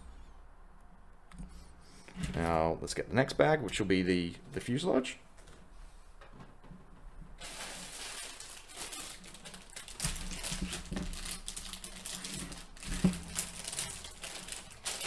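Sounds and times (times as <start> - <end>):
plastic bag crinkling: 7.4 - 15.0.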